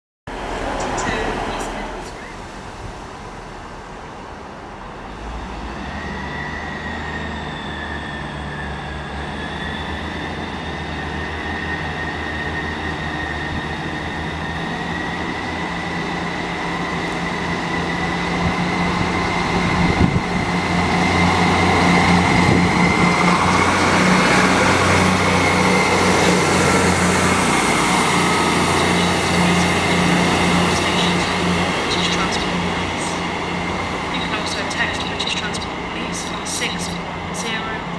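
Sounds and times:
diesel train engines: 0:00.3 - 0:37.9
thin rising whistle: 0:05.5 - 0:15.6
steady whine: 0:05.5 - 0:37.9.

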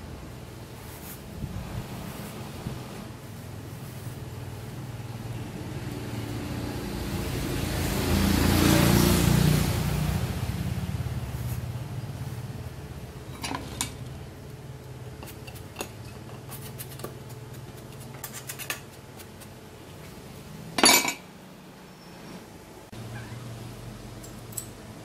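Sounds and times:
steady low hum: 0:00.0 - 0:25.0
metal bar clinking and scraping: 0:13.3 - 0:14.1, 0:20.8 - 0:21.2.

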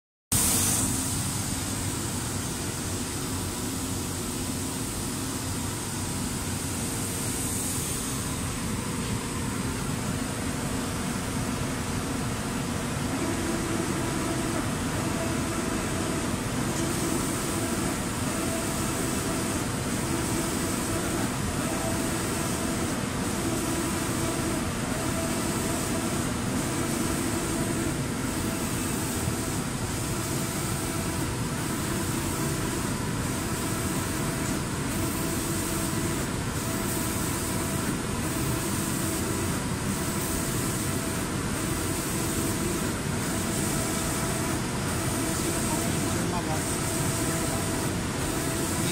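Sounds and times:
spray gun hissing: 0:00.3 - 0:05.9, 0:06.5 - 0:09.7, 0:13.1 - 0:48.9.

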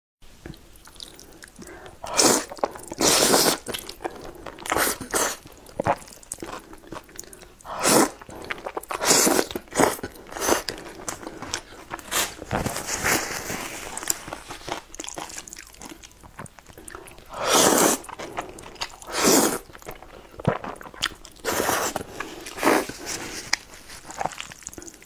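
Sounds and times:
chewing: 0:00.4 - 0:25.0
wet noodle slurps: 0:02.1 - 0:06.6, 0:07.7 - 0:14.8, 0:16.8 - 0:19.7, 0:20.5 - 0:24.5.

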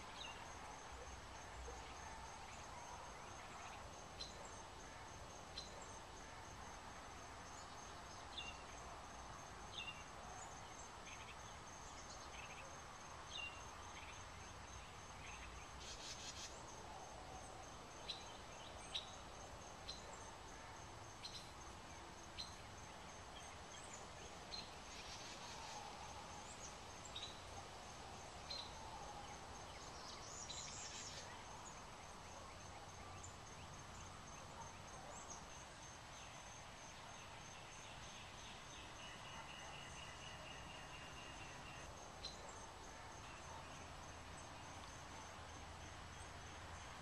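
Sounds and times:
low steady background noise: 0:00.0 - 0:47.0.

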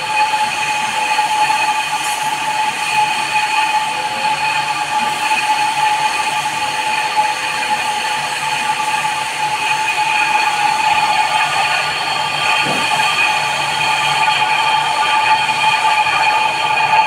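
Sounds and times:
machine humming: 0:11.8 - 0:14.1.

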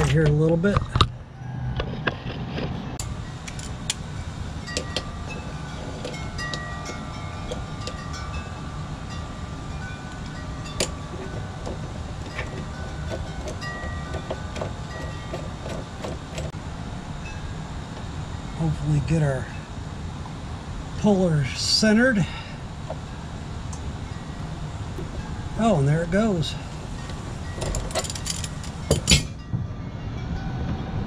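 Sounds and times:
metal clinks and rings: 0:03.0 - 0:16.5, 0:24.0 - 0:30.5.

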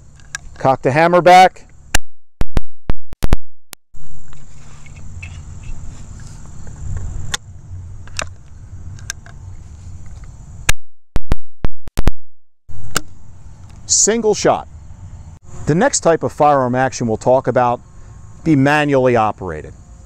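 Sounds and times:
insects chirping: 0:00.0 - 0:00.7, 0:04.0 - 0:10.7, 0:12.7 - 0:20.0.

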